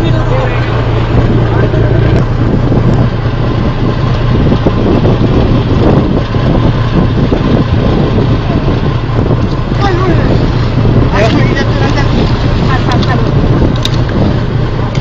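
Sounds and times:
boat engine humming: 0:00.0 - 0:15.0
wind rushing over microphone: 0:00.0 - 0:15.0.

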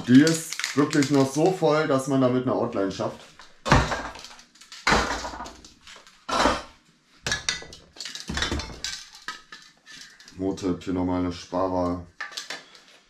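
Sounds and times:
metal spray cans clinking: 0:07.3 - 0:10.4.

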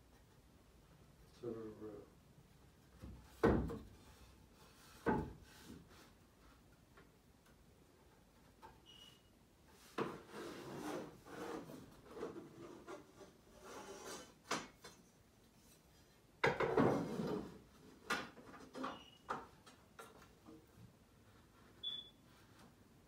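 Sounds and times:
wooden boards scraping and knocking: 0:03.0 - 0:06.2, 0:16.4 - 0:18.8.

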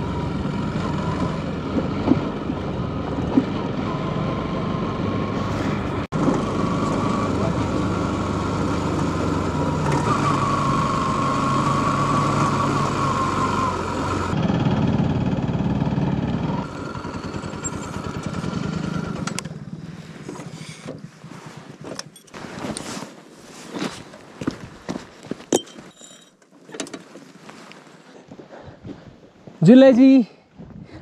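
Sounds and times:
motorcycle engine running: 0:00.0 - 0:22.2.

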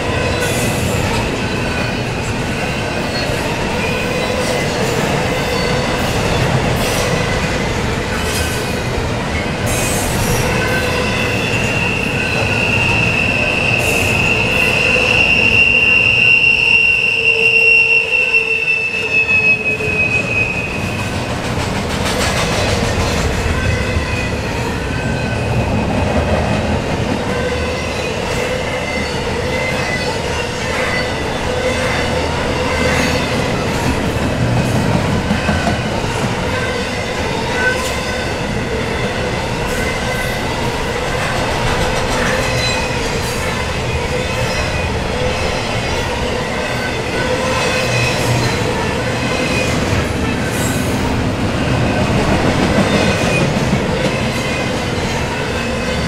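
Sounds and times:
freight train rumbling past: 0:00.0 - 0:56.0
steel wheel squeal: 0:09.7 - 0:21.2, 0:35.4 - 0:51.0
train wheel clatter: 0:19.9 - 0:24.4, 0:31.8 - 0:56.0.

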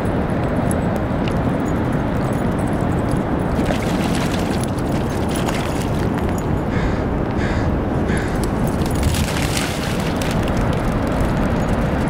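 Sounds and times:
wind buffeting microphone: 0:00.0 - 0:12.0
dog splashing in water: 0:03.6 - 0:06.4, 0:08.5 - 0:11.1.

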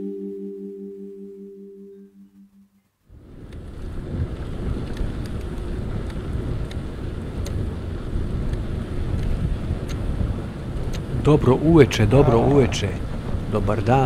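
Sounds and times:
wind buffeting microphone: 0:03.1 - 0:14.0
sharp ticks: 0:07.4 - 0:07.6, 0:08.5 - 0:10.1, 0:10.8 - 0:11.1.

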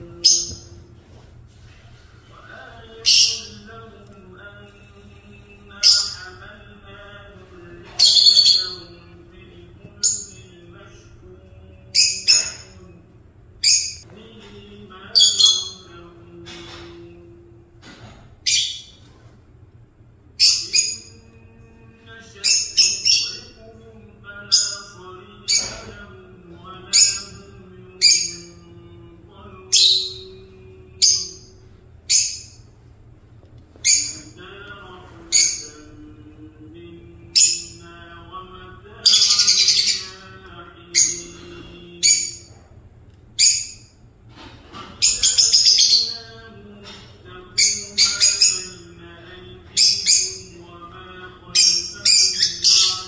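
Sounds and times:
lovebirds chirping: 0:00.0 - 0:00.8, 0:02.4 - 0:04.7, 0:05.3 - 0:10.6, 0:15.1 - 0:16.0, 0:33.8 - 0:36.1, 0:38.9 - 0:42.5, 0:45.0 - 0:46.4, 0:47.6 - 0:53.0
lovebirds chattering rapidly: 0:02.6 - 0:03.9, 0:05.6 - 0:06.8, 0:07.8 - 0:09.0, 0:38.9 - 0:42.5, 0:45.0 - 0:46.4, 0:51.6 - 0:53.0.

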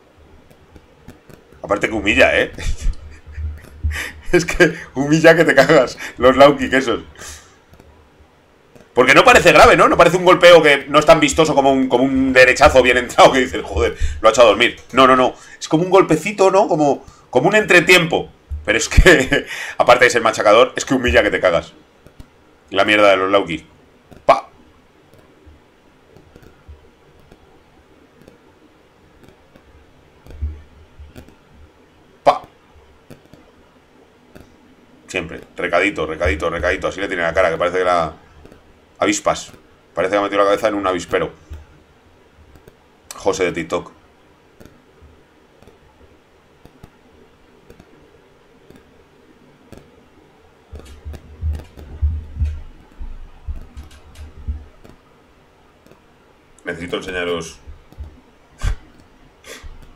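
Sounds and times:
faint room noise: 0:00.0 - 0:59.9
faint scattered clicks: 0:00.4 - 0:04.7, 0:07.0 - 0:08.0, 0:17.1 - 0:59.9
computer mouse clicks: 0:07.2 - 0:08.0, 0:22.0 - 0:22.3, 0:25.1 - 0:27.6, 0:28.2 - 0:28.5, 0:29.2 - 0:31.6, 0:32.3 - 0:33.6, 0:38.3 - 0:38.6, 0:42.5 - 0:43.5, 0:44.6 - 0:45.0, 0:45.6 - 0:45.9, 0:46.6 - 0:49.0, 0:49.6 - 0:50.0, 0:50.6 - 0:55.0, 0:55.8 - 0:56.7, 0:57.4 - 0:59.9
dull low thump: 0:50.7 - 0:54.8
loud low thuds: 0:50.7 - 0:54.8
keyboard taps: 0:50.7 - 0:55.0.

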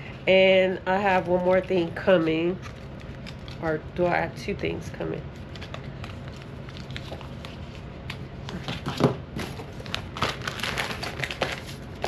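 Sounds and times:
packaging crinkling and rustling: 0:01.1 - 0:03.6, 0:05.3 - 0:12.0.

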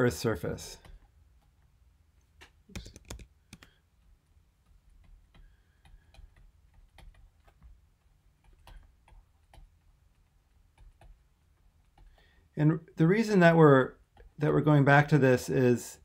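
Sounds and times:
stylus tapping on tablet screen: 0:02.4 - 0:03.8, 0:04.6 - 0:12.5.

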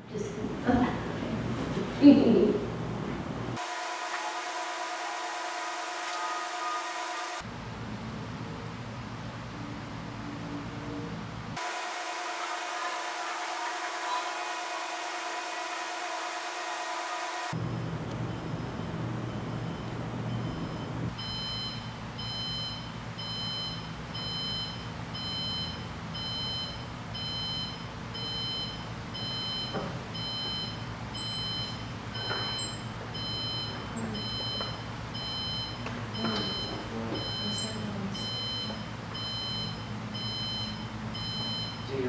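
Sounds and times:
alarm clock beeping: 0:11.6 - 0:17.6, 0:18.3 - 0:42.0.

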